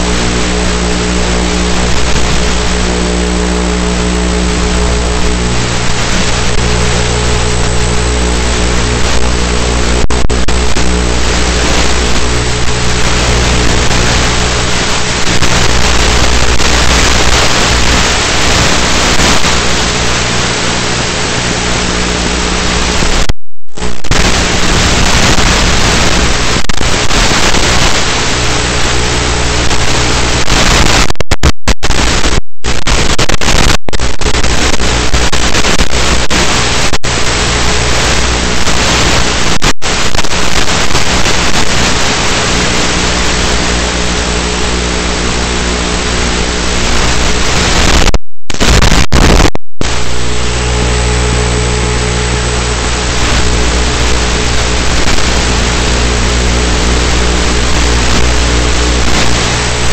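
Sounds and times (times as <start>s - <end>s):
electric motor droning hum: 0.0s - 23.1s, 41.1s - 47.5s, 49.9s - 59.9s
transmission noise hiss: 0.0s - 59.9s.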